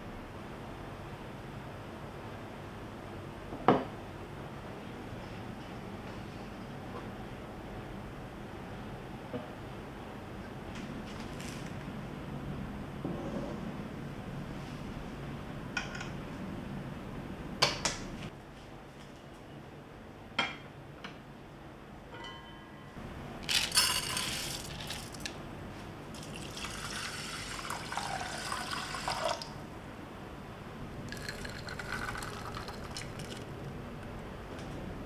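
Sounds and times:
water pouring into a pot: 0:26.2 - 0:29.6, 0:31.1 - 0:33.4.

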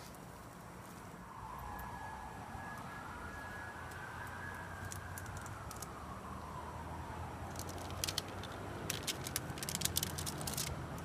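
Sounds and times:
distant siren: 0:01.1 - 0:10.6
plastic pot crackling: 0:07.4 - 0:11.0.

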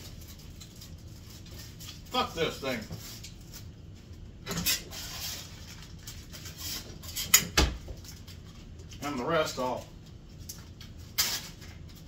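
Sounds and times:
plastic bag rustling: 0:04.8 - 0:07.2.

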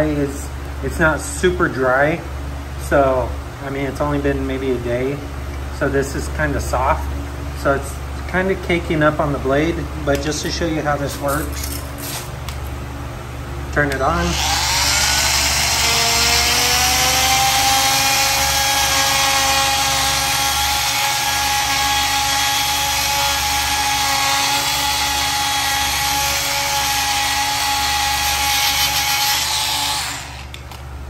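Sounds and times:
oscillating multi-tool whining: 0:14.1 - 0:30.7.

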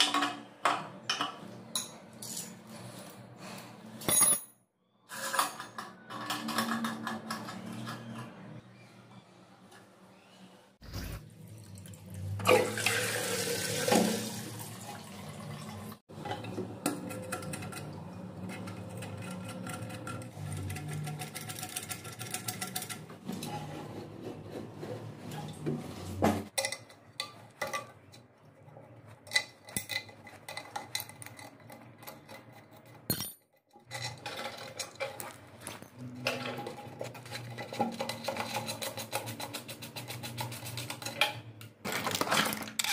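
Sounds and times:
water rushing in toilet cistern: 0:11.8 - 0:16.0.

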